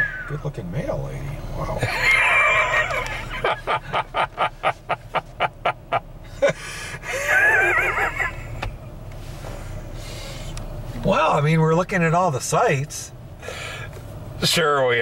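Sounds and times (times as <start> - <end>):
low engine hum: 0.0 - 15.0
men laughing: 1.8 - 8.7.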